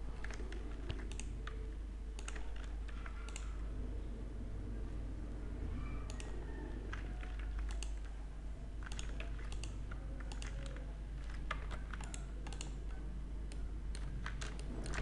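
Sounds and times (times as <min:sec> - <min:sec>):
steady low hum: 0:00.0 - 0:15.0
keyboard keys clicking: 0:00.2 - 0:01.6, 0:02.2 - 0:03.5, 0:06.1 - 0:08.2, 0:08.8 - 0:15.0
mouse buttons clicking: 0:08.8 - 0:12.8.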